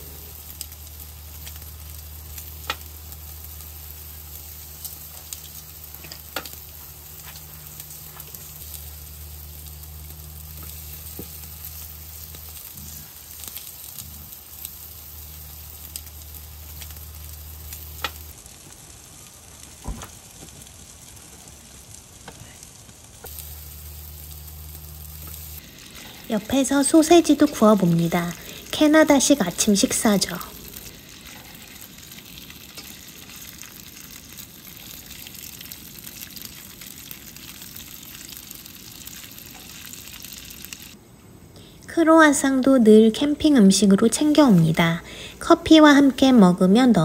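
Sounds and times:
steady low hum: 0:00.0 - 0:18.5, 0:23.2 - 0:34.4
ribs sizzling on a grill: 0:00.0 - 0:41.0
sharp pops from cooking meat: 0:00.4 - 0:22.6, 0:30.7 - 0:41.0.

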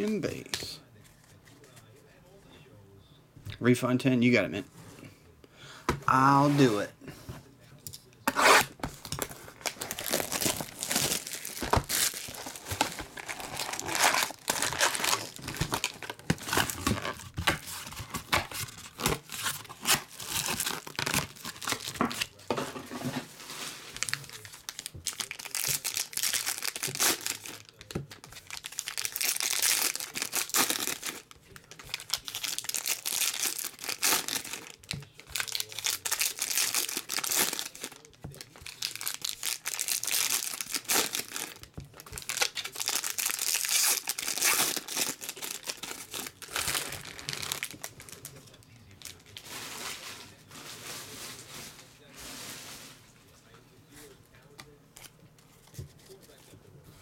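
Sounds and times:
foil wrappers crinkling: 0:08.6 - 0:53.0.

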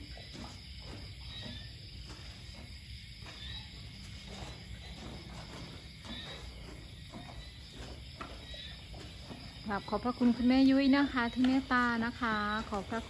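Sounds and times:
crickets chirring: 0:00.0 - 0:13.0.

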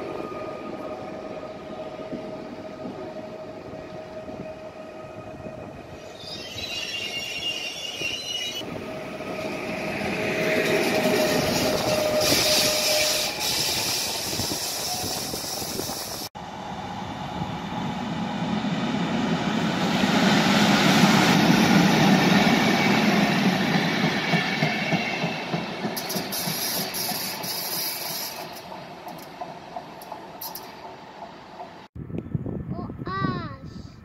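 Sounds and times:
electric train running: 0:00.0 - 0:31.8
diesel locomotive passing: 0:00.0 - 0:32.2
coaches clicking over rail joints: 0:10.0 - 0:16.2, 0:23.4 - 0:31.9.

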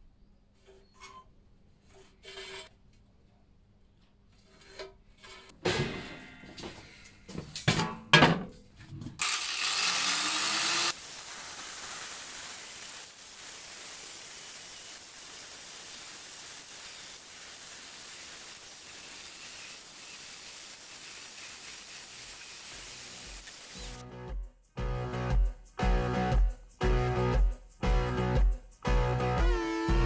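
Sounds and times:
angle grinder cutting steel: 0:09.2 - 0:24.0.

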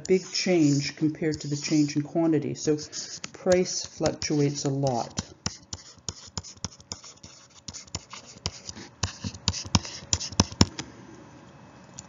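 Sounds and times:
computer clicking and tapping: 0:02.8 - 0:10.8.

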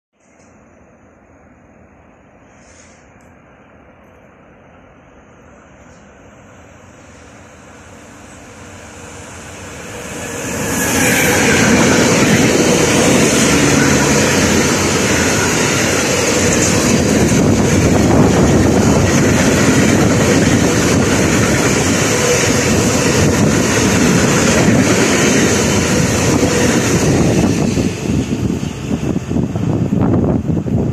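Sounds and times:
electric locomotive passing: 0:03.4 - 0:30.9
train wheels rolling: 0:07.0 - 0:30.9.

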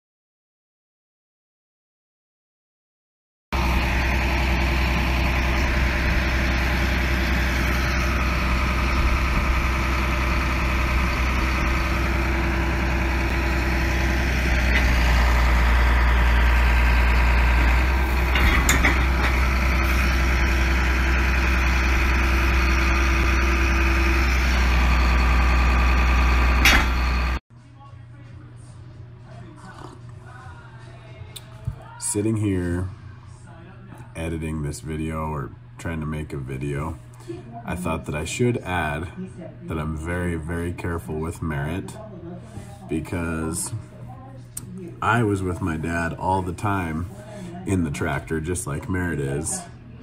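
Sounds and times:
tractor diesel engine droning: 0:03.6 - 0:27.4.

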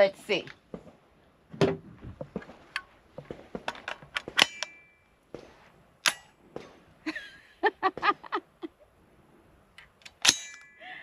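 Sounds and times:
rifle bolt clicking and clacking: 0:03.6 - 0:04.8, 0:09.8 - 0:10.7.

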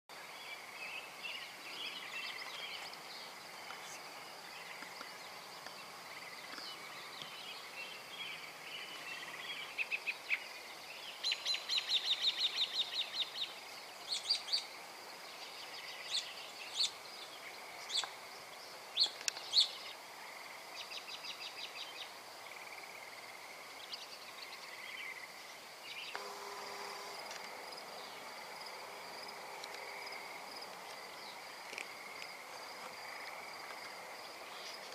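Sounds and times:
high insect chirring: 0:26.1 - 0:34.9.

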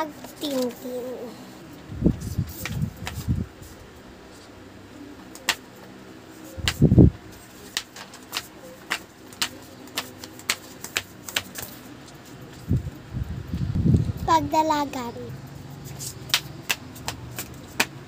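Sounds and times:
flip-flops slapping hard floor: 0:16.0 - 0:18.0.

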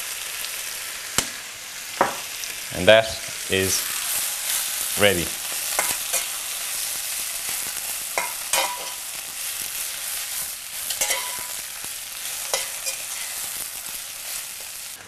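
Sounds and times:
vegetables sizzling in oil: 0:00.0 - 0:15.0
utensils clinking against pan: 0:05.5 - 0:06.5, 0:08.2 - 0:09.1, 0:10.8 - 0:11.6, 0:12.2 - 0:13.5.

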